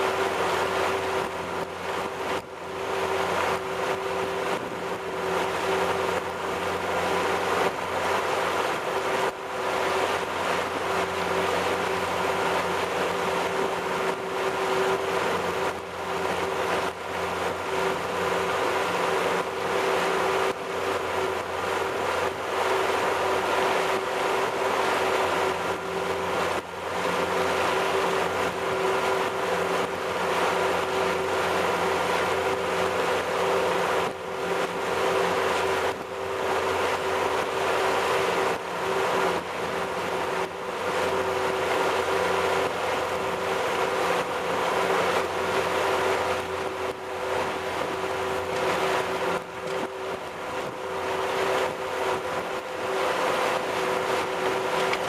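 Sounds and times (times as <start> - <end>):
boat engine drone: 0.0 - 55.0
water churning along hull: 0.0 - 55.0.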